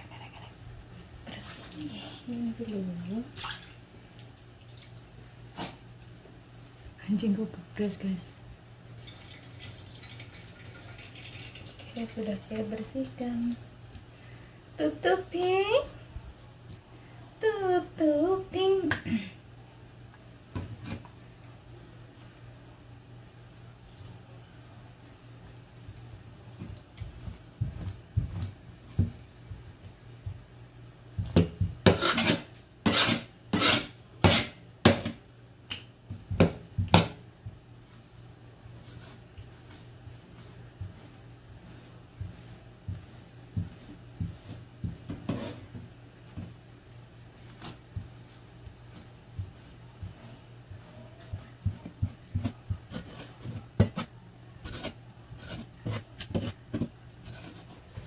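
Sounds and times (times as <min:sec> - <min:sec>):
knife scraping on chopping board: 0:31.8 - 0:34.6, 0:41.7 - 0:45.8.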